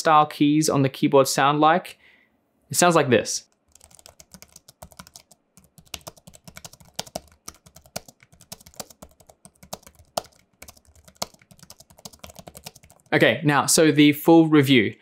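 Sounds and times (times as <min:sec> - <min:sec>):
keyboard typing clicks: 0:03.5 - 0:13.1.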